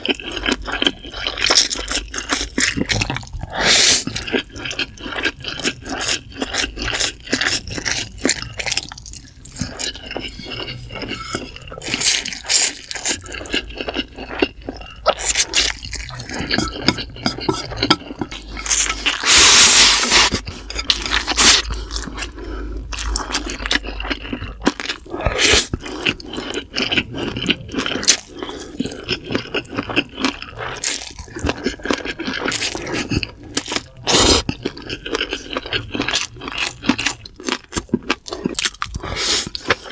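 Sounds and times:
slurping and chewing noodles: 0:00.0 - 0:39.9.

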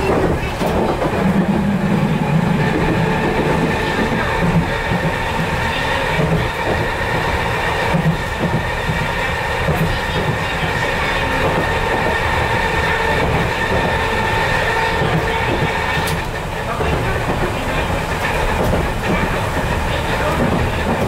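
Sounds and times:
clacks at rail joints: 0:00.0 - 0:21.0
electric train whine: 0:00.0 - 0:21.0
wheels rumbling on rails: 0:00.0 - 0:21.0.

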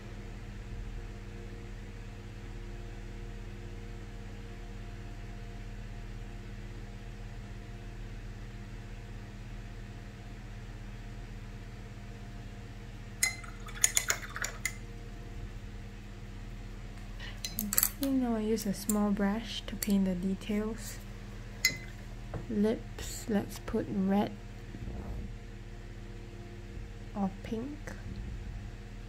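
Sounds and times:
steady low hum: 0:00.0 - 0:29.0
paintbrush clinking glass jar: 0:13.2 - 0:14.8, 0:21.6 - 0:22.0.

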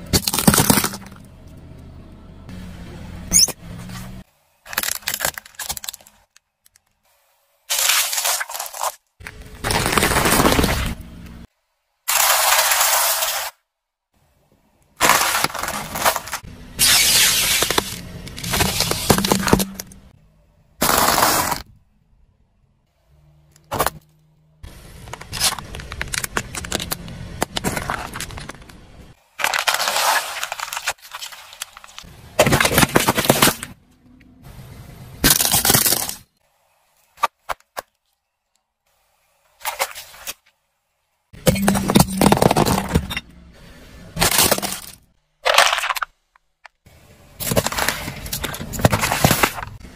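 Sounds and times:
car tyre crushing objects: 0:00.0 - 0:01.6, 0:03.3 - 0:06.8, 0:07.7 - 0:11.5, 0:14.9 - 0:20.2, 0:20.8 - 0:21.7, 0:23.5 - 0:33.9, 0:35.2 - 0:36.4, 0:41.3 - 0:49.9.

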